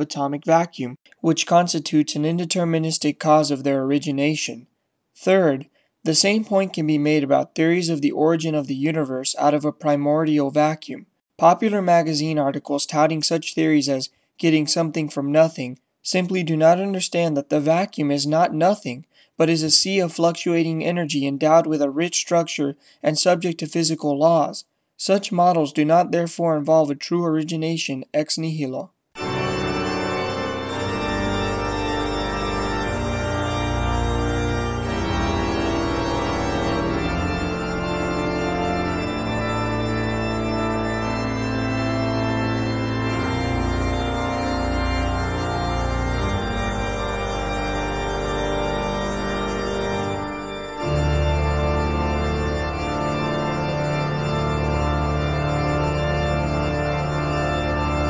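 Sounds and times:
slow organ music: 29.2s - 58.0s.

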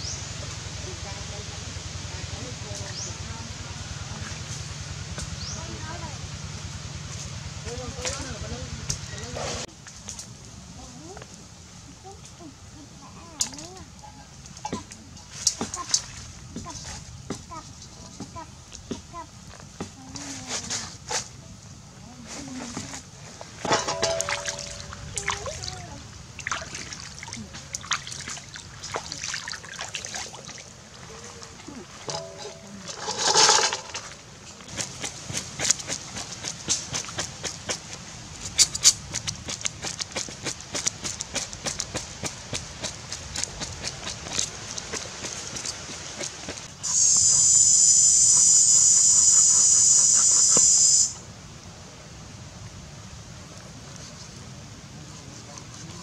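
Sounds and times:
water splashing and trickling: 0.0s - 46.8s
cleaver scraping fish scales: 32.0s - 47.0s
high-pitched insect buzz: 46.8s - 51.2s.

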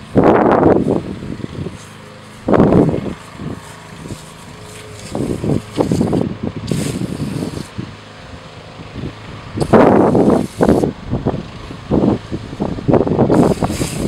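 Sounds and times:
aerosol can spraying: 1.7s - 7.8s, 9.6s - 11.0s, 13.3s - 14.0s.

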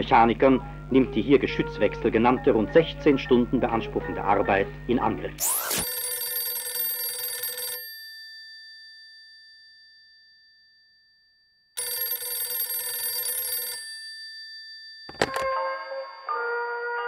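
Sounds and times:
telephone bell ringing: 5.4s - 9.8s, 11.8s - 16.6s.

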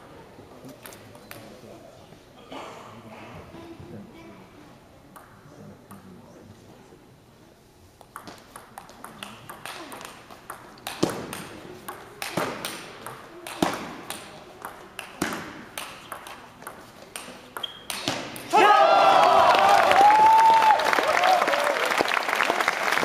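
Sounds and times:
table tennis ball clicking: 8.0s - 18.2s.

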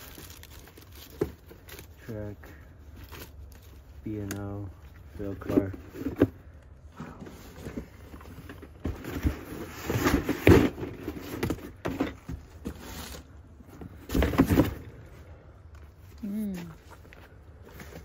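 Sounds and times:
cardboard boxes rustling and scraping: 0.0s - 18.0s.

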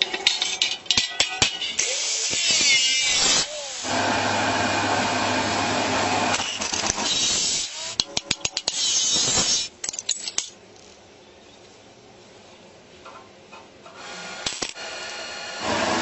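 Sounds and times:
low electrical hum: 0.0s - 15.6s
angle grinder cutting sheet steel: 1.8s - 8.0s, 14.3s - 16.0s
arc welding crackling hiss: 1.8s - 9.8s.

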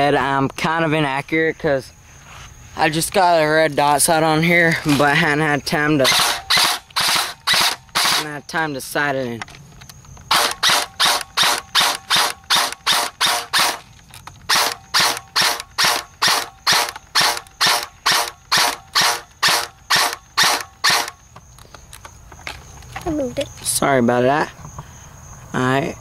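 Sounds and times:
airsoft gun shots cracking: 6.1s - 8.4s, 10.3s - 13.9s, 14.5s - 21.2s.

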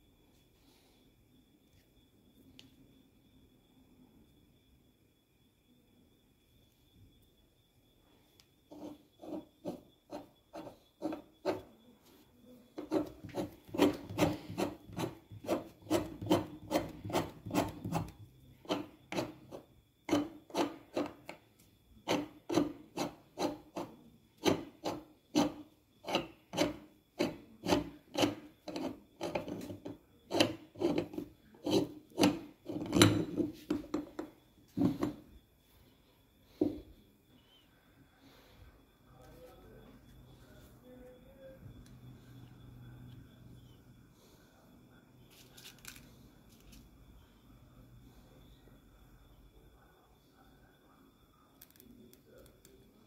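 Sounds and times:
metal lid threads grating: 22.1s - 33.4s.

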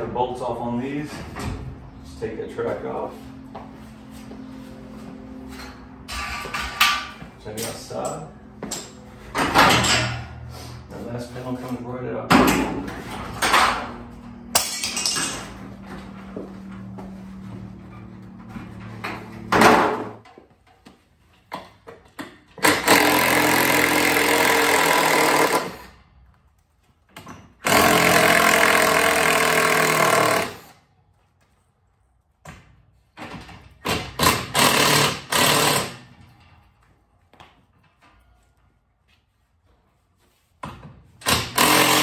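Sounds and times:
impact driver hammering: 22.6s - 25.8s, 27.6s - 30.7s, 33.8s - 36.0s, 41.2s - 42.0s.

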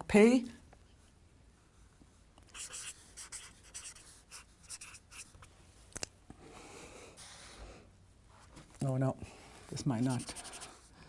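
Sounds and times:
felt-tip marker writing on paper: 2.5s - 5.4s, 10.0s - 10.9s.

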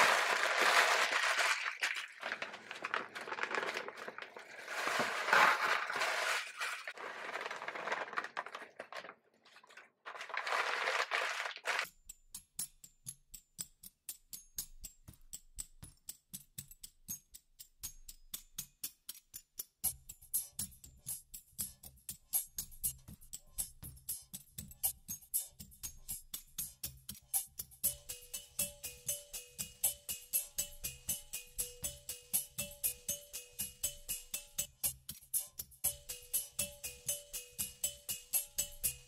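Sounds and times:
paper crumpling: 0.0s - 11.9s
music with ticking beat: 11.9s - 39.0s.

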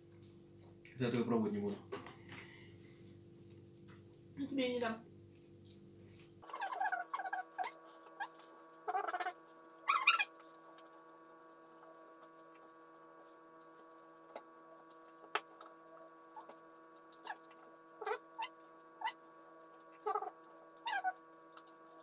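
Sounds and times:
faint electrical hum: 0.0s - 22.0s
people chewing: 10.1s - 21.8s.

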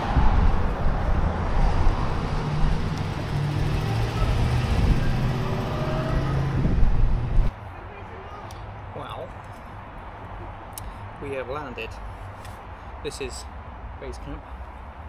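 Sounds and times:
vehicle driving past: 0.0s - 7.5s
street rush: 0.0s - 15.0s.

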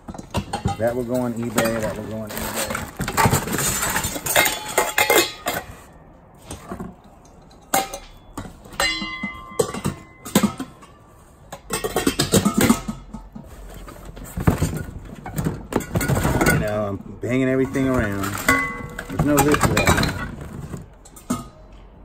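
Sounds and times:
steel pots and bowls clanking: 0.0s - 21.8s
metal bowl ringing: 8.0s - 10.4s.

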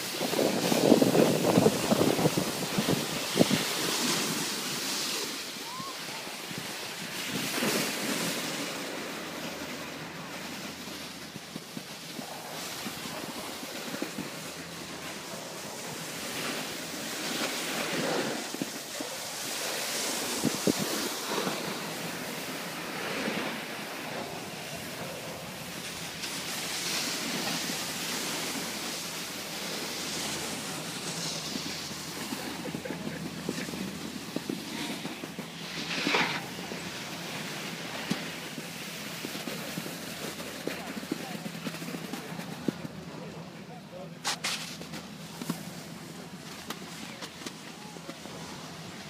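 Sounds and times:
wind buffeting microphone: 0.0s - 4.8s, 20.1s - 35.6s
snowboard scraping over snow: 0.0s - 49.0s.

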